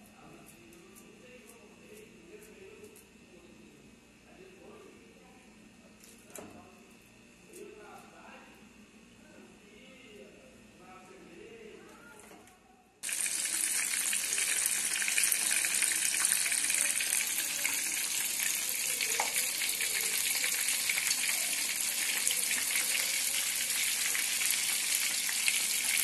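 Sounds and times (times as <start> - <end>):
deep-frying sizzle and crackle: 13.0 - 26.0.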